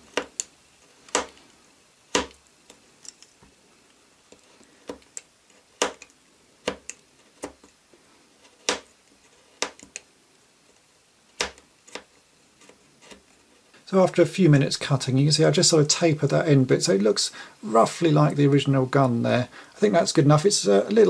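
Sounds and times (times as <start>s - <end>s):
craft knife cutting plastic: 0.0s - 1.4s, 2.1s - 3.3s, 4.3s - 7.8s, 8.4s - 10.1s, 11.3s - 13.3s.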